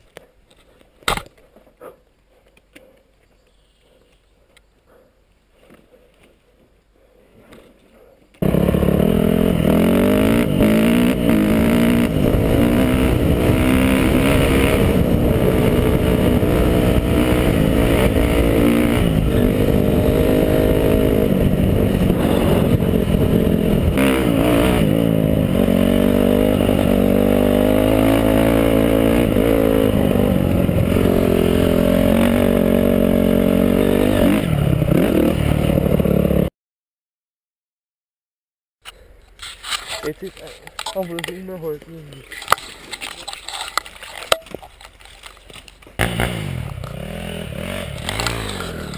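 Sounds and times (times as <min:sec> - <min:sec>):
dirt bike engine revving: 0:08.4 - 0:36.5, 0:46.0 - 0:48.9.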